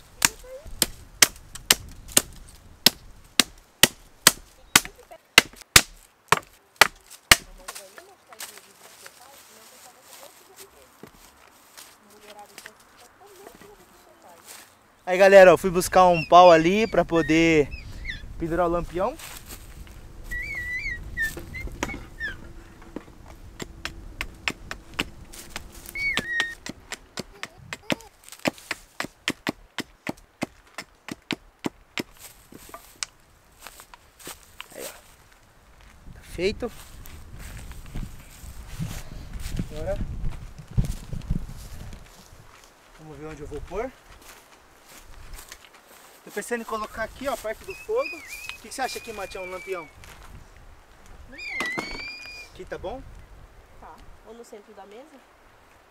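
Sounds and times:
axe chopping wood: 0.2 - 7.8, 23.6 - 32.9.

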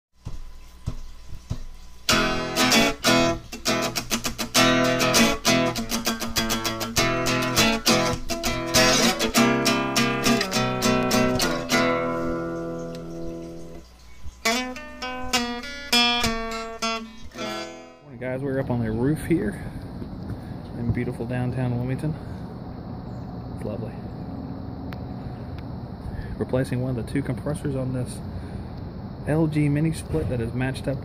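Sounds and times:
acoustic guitar strumming: 2.1 - 19.1.

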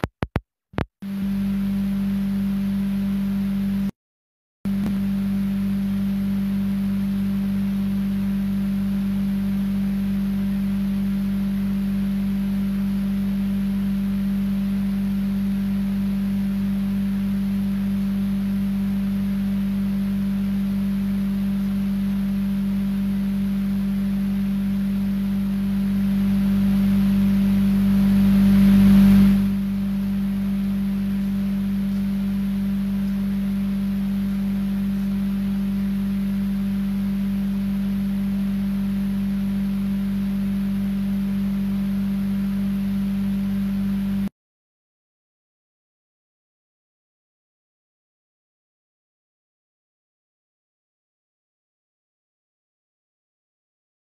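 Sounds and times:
loud steady low hum: 1.0 - 4.0, 4.7 - 44.3.

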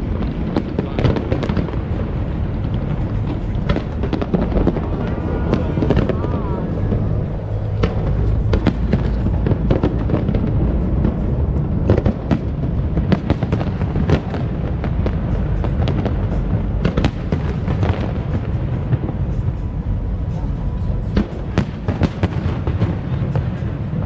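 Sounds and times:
fireworks cracks and bangs: 0.0 - 24.0
low rumble: 0.0 - 24.0.

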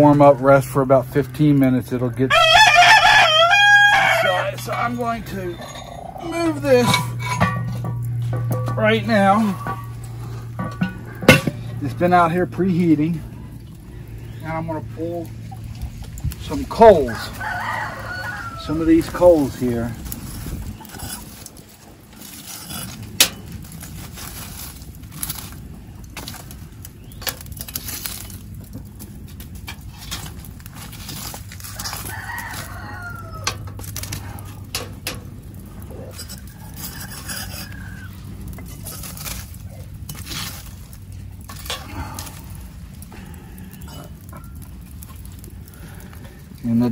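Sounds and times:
metal tool scraping coals: 0.0 - 46.9
rooster crowing: 2.3 - 4.8, 17.0 - 19.0, 31.7 - 33.8, 36.2 - 38.2.

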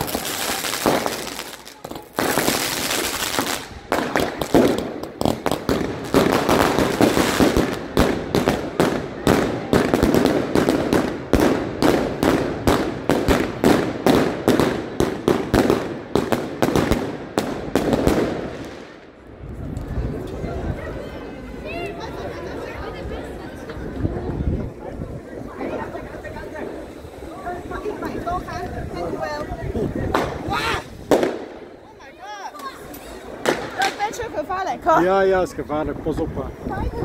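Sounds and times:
firework bangs: 0.0 - 19.1, 30.0 - 31.8, 32.6 - 34.4.

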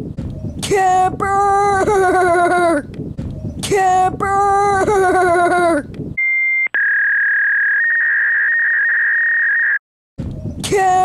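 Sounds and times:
electronic beep: 6.2 - 9.8.

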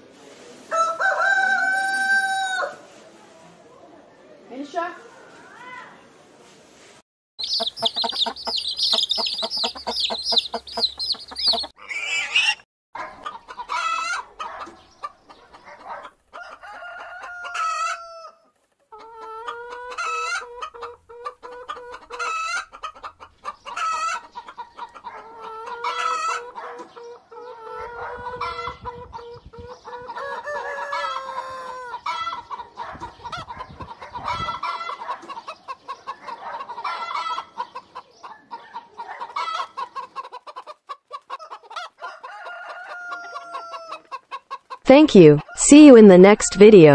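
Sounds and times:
chickens clucking: 7.4 - 44.8.

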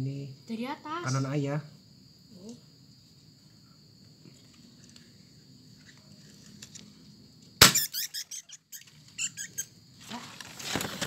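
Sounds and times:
crickets chirping: 0.0 - 11.0
rat squeaking: 7.6 - 9.8.

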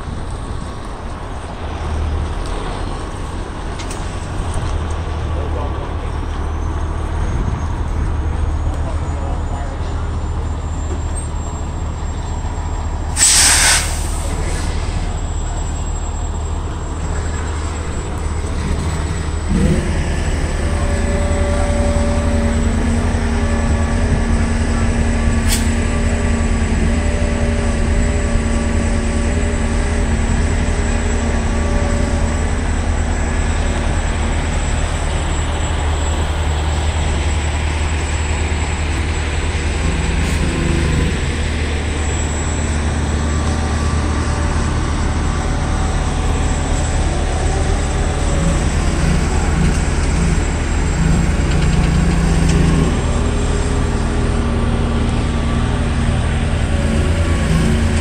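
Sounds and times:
truck diesel engine rumble: 0.0 - 58.0.

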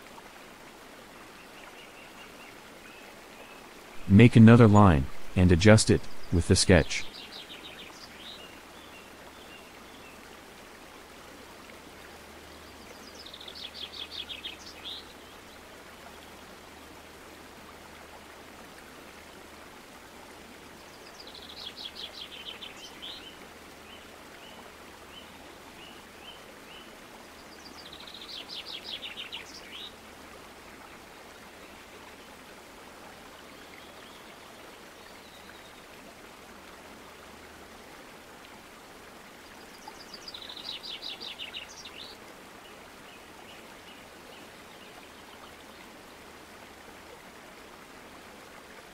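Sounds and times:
low hiss and hum: 3.1 - 7.1.

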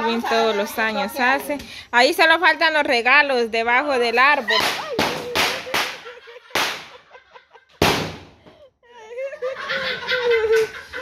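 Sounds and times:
people talking and laughing: 0.0 - 1.8, 3.8 - 7.7, 8.8 - 11.0
firecracker bangs: 7.8 - 8.4.

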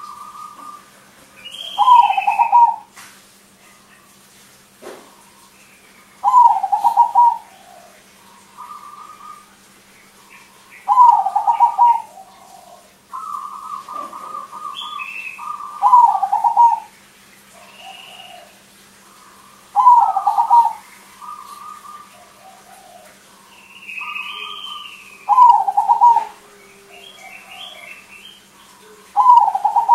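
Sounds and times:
dove cooing: 0.0 - 2.9, 6.2 - 29.9.

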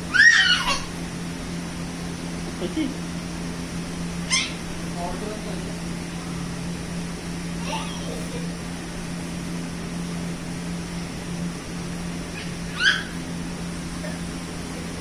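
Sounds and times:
air cooler fan humming: 0.0 - 15.0
toddler squealing: 0.1 - 1.0, 4.3 - 4.6, 12.3 - 13.2.

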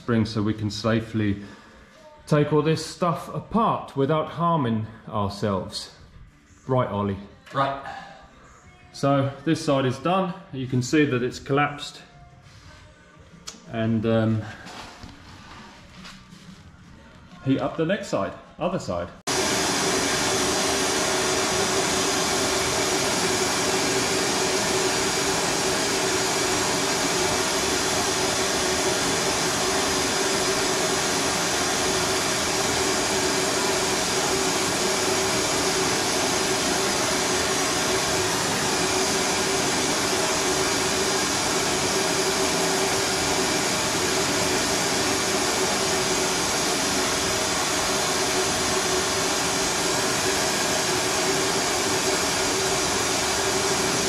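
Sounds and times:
gas torch flame hissing: 19.3 - 54.0.

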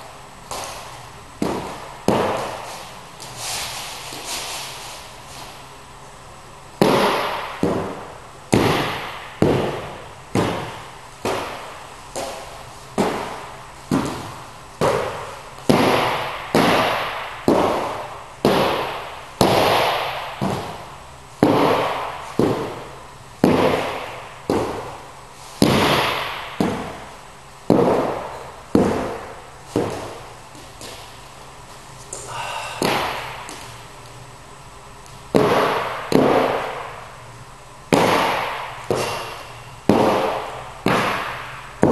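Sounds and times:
dumbbell thuds echoing in hall: 6.8 - 31.1, 32.2 - 33.8, 35.3 - 37.2, 37.9 - 41.9.

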